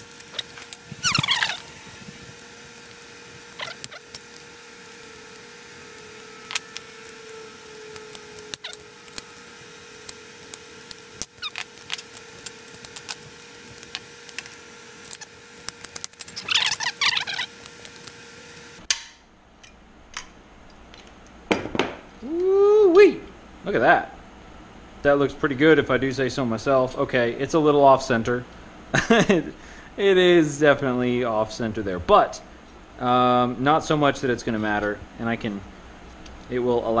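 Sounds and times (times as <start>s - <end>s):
squeaking: 0.3s - 1.9s, 3.6s - 4.1s, 16.3s - 17.5s.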